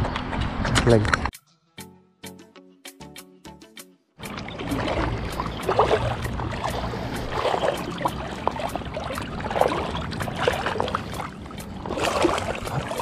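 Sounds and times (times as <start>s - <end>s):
seawater sloshing and splashing: 4.2s - 13.0s.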